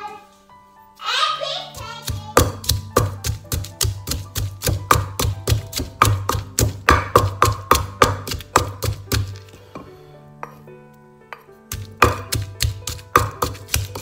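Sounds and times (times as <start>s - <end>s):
background music: 0.0s - 14.0s
pestle pounding in mortar: 1.7s - 9.4s, 11.7s - 14.0s.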